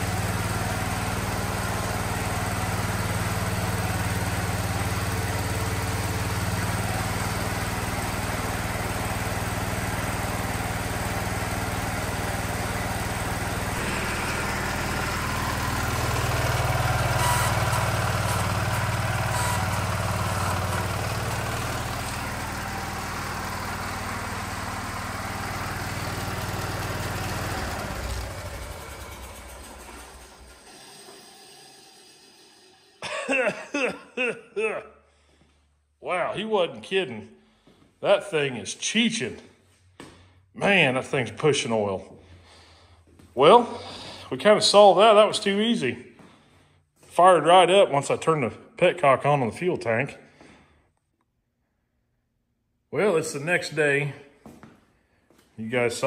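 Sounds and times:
tractor engine running: 0:00.0 - 0:33.5.

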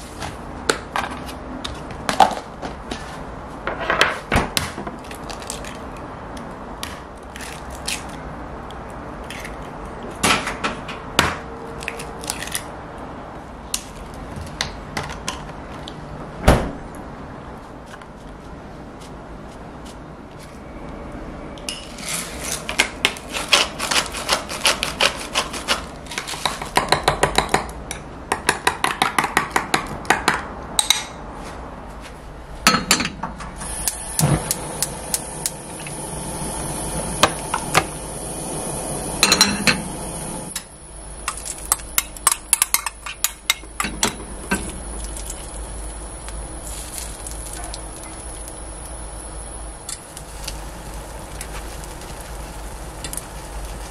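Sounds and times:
pan sizzling: 0:33.6 - 0:40.6, 0:41.3 - 0:53.9.

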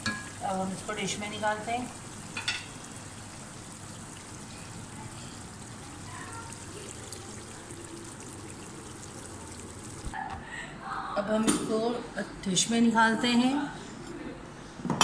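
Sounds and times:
hot oil sizzling in a pan: 0:00.0 - 0:10.2.

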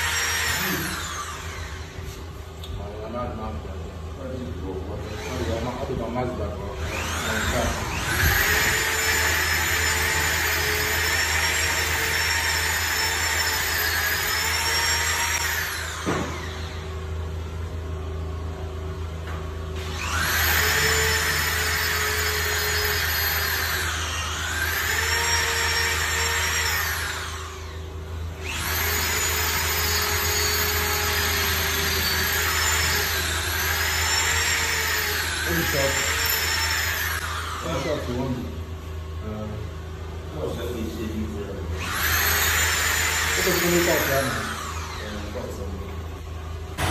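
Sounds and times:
electric drill boring into wall: 0:00.0 - 0:02.3, 0:04.9 - 0:17.2, 0:19.7 - 0:38.5, 0:41.7 - 0:45.7.

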